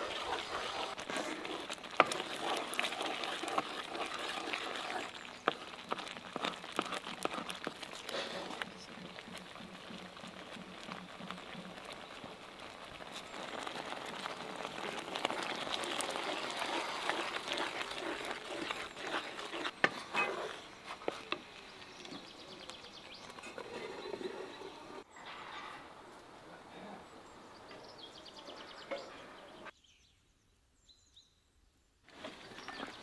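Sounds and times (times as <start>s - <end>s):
sugar pouring: 0.0s - 22.6s
wooden spoon stirring and scraping: 0.0s - 25.8s, 32.1s - 33.0s.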